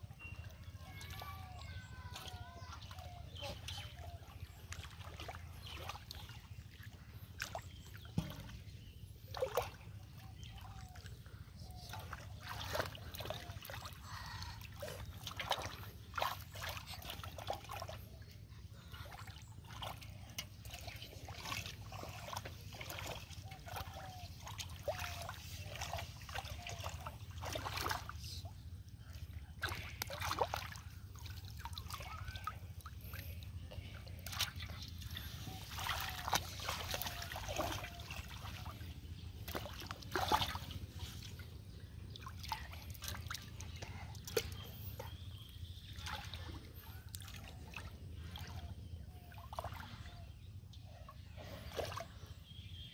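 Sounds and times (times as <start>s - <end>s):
water trickling: 9.4s - 41.4s
hands splashing in muddy water: 11.7s - 18.0s, 19.0s - 28.4s, 29.5s - 45.3s.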